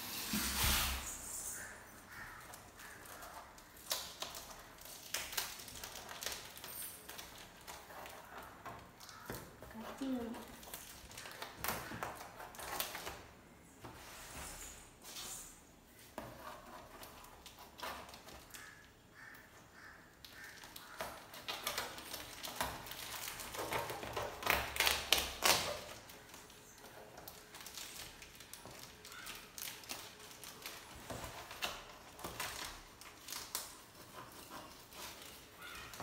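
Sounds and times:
tapping and scratching: 0:01.6 - 0:13.2, 0:16.0 - 0:18.9, 0:20.2 - 0:36.0
cardboard rustling: 0:15.9 - 0:18.8, 0:20.4 - 0:36.0.

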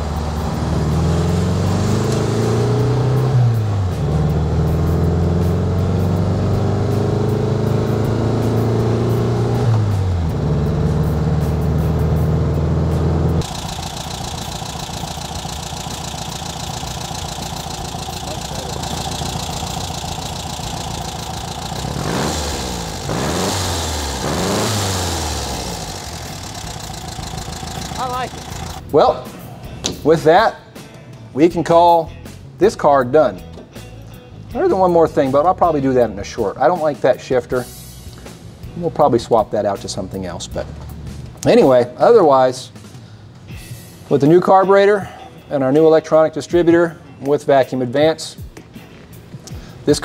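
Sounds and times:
car engine accelerating: 0:00.0 - 0:28.9, 0:39.8 - 0:41.5.

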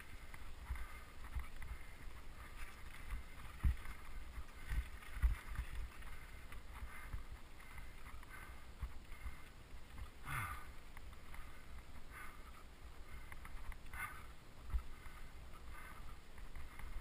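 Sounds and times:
bicycle tyres on loose stones: 0:00.0 - 0:17.0
bike rattling over bumps: 0:00.0 - 0:17.0.

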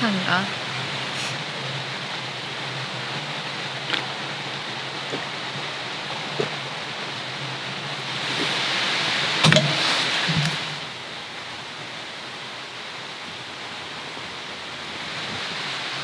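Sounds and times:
mountain stream rushing: 0:00.0 - 0:16.0.

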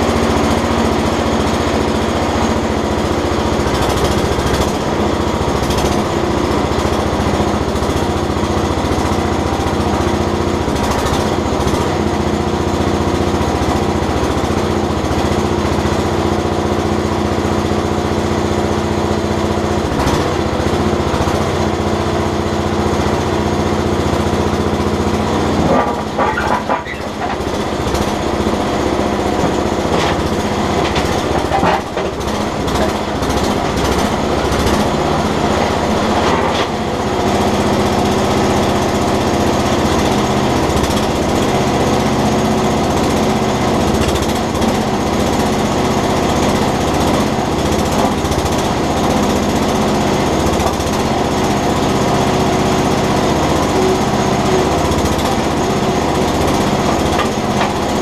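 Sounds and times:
small backhoe engine running: 0:00.0 - 0:58.0.

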